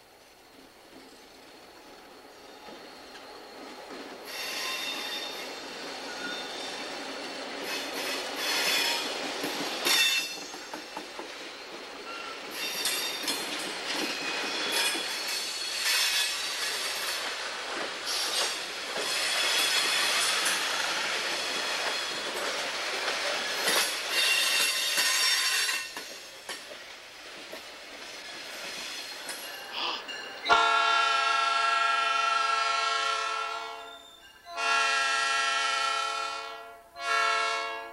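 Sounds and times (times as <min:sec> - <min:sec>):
train cars rumbling on track: 0:00.0 - 0:37.9
steel wheels squealing: 0:02.0 - 0:17.4, 0:18.0 - 0:26.4, 0:28.5 - 0:30.6, 0:33.8 - 0:34.5.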